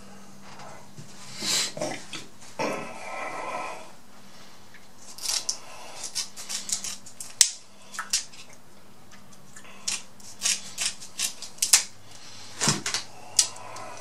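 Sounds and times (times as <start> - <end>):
crab shell crunching and snapping: 5.0 - 8.5, 9.1 - 11.9, 12.9 - 14.0.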